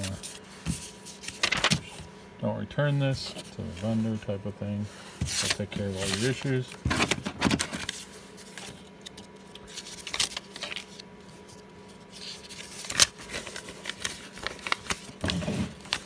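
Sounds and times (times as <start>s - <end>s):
paper rustling: 0.0s - 2.0s, 5.2s - 16.0s.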